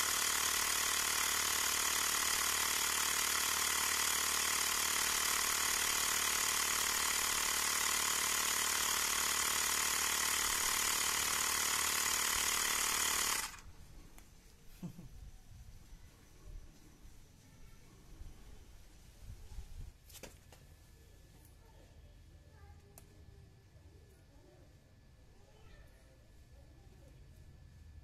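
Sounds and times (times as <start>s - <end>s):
electric air compressor running: 0.0s - 13.7s.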